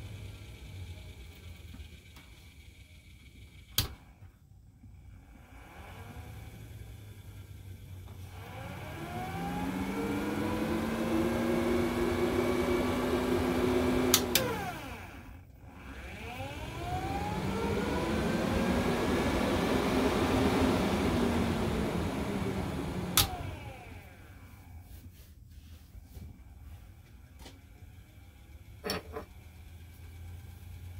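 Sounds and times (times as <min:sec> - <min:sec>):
roof vent fan humming: 0:08.2 - 0:25.0
fan switch click: 0:23.1 - 0:23.5.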